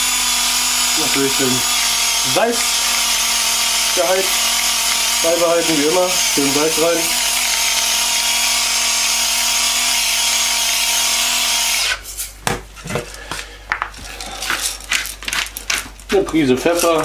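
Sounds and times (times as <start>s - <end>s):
electric salt mill grinding: 0.0s - 12.0s.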